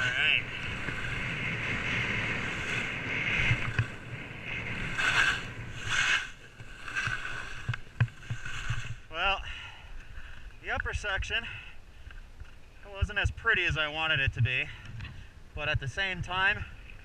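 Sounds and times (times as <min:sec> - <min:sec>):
wind on microphone: 0:00.0 - 0:09.1
skis scraping over snow: 0:00.0 - 0:09.4.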